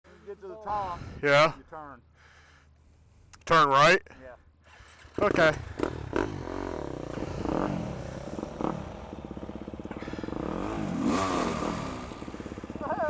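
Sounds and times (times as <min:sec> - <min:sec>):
dirt bike engines revving: 0:04.7 - 0:13.0.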